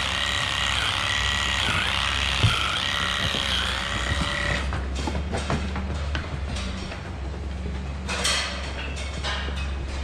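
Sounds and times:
electric trimmer whining: 0:00.0 - 0:04.7.

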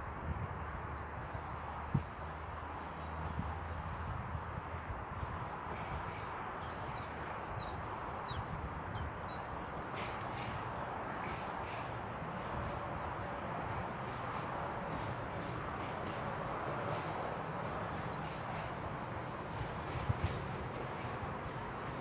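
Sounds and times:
steady rushing background noise: 0:07.8 - 0:22.0.

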